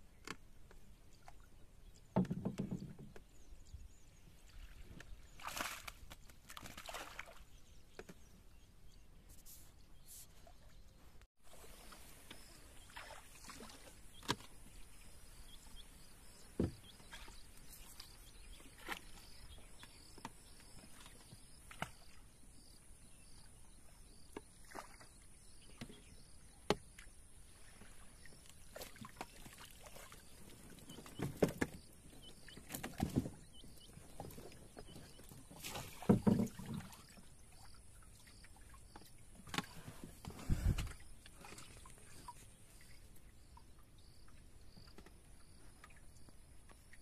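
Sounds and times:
splashes and knocks in water: 2.0 - 3.3, 4.4 - 8.2, 11.5 - 15.4, 16.2 - 22.7, 24.3 - 26.0, 26.6 - 42.4.

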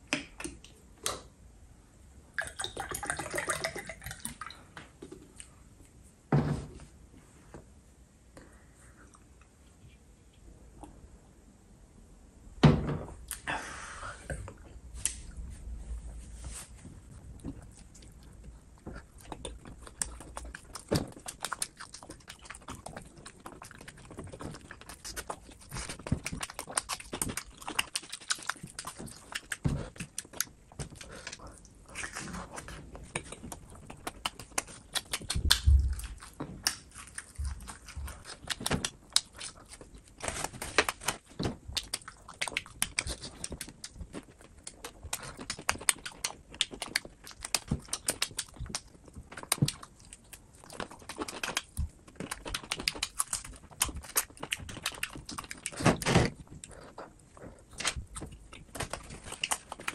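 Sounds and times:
chewing with crackles: 17.0 - 59.9.

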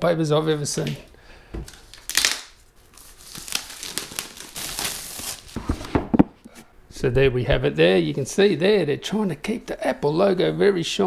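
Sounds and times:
plastic wrap ripping: 1.7 - 5.6
plastic film crinkling: 1.7 - 5.8.

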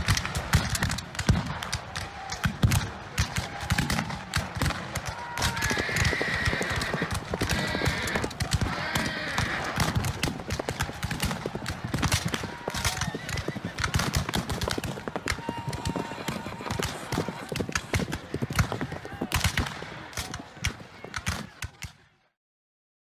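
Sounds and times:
horses galloping: 0.0 - 22.0
horses whinnying: 5.0 - 19.4.

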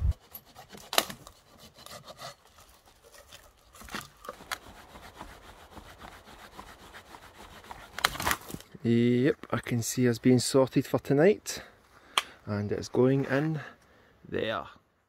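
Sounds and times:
hand saw rasping on dry wood: 0.0 - 8.4
sharp wood cracks: 0.5 - 8.8.

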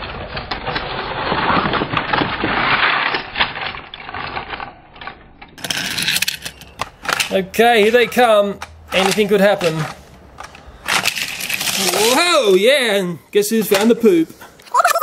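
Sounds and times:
toy trains rattling on plastic track: 5.6 - 12.2.

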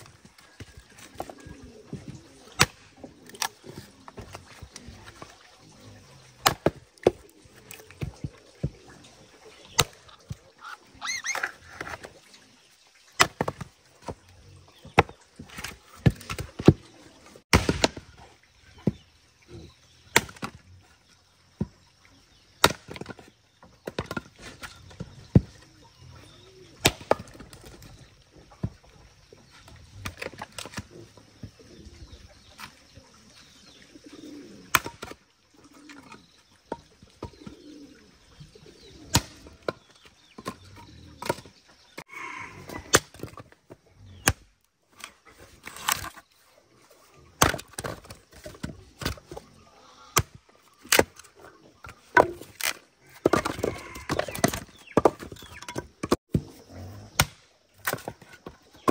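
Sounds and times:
axe chopping wood: 6.4 - 7.3, 17.5 - 18.1, 20.1 - 20.6, 26.8 - 27.7, 34.7 - 35.2, 39.1 - 39.8, 42.8 - 43.4, 47.4 - 49.2, 52.1 - 56.5, 57.1 - 58.9.

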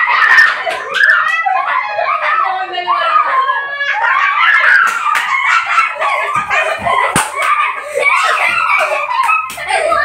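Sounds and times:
children shouting and laughing: 0.0 - 10.0
sharp slap: 7.1 - 7.5.

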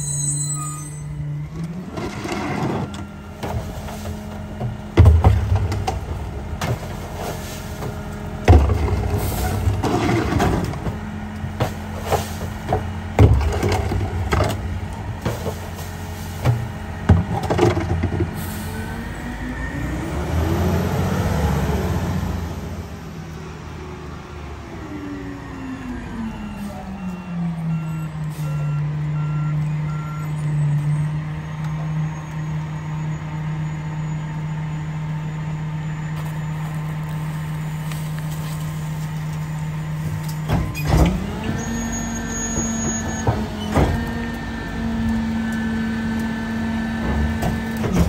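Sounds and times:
containers banging against hopper: 2.0 - 18.5, 42.4 - 44.2, 46.9 - 48.0
engine revving: 18.7 - 22.8.

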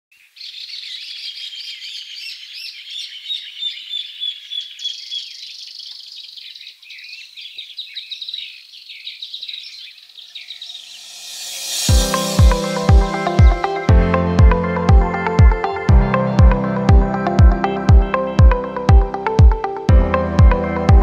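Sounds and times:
songbirds chirping and trilling: 0.1 - 13.9.

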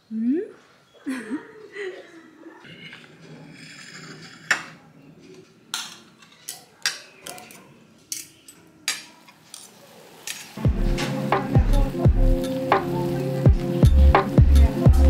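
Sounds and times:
cutlery clinking on plate: 3.8 - 10.6.

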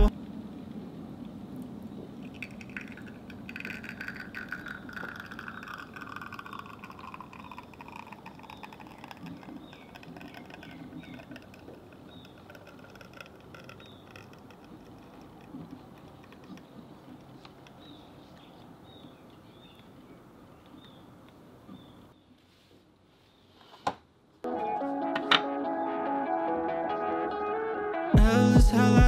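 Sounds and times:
espresso trickling into glass: 2.2 - 18.1
small ticks and chirps: 2.3 - 19.9.

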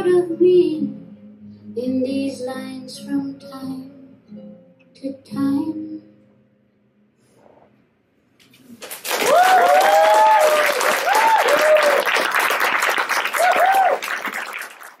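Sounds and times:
audience applauding: 8.8 - 15.0
whoops and cheers: 9.1 - 12.3, 13.2 - 14.4.

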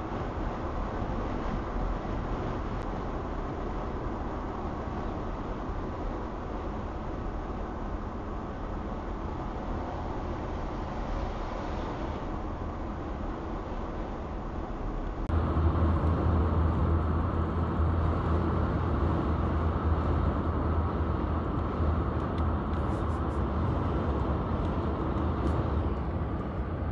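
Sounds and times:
car engine rumble: 12.1 - 26.9.

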